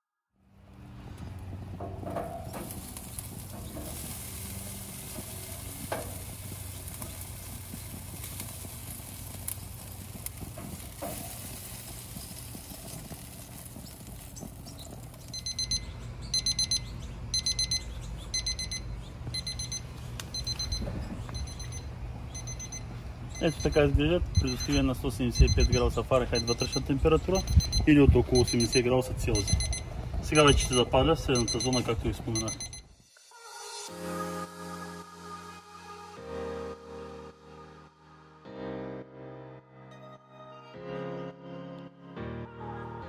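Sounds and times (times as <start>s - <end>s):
chicken sizzling on grill: 1.1s - 16.2s
thermometer alarm beeping: 15.3s - 32.9s.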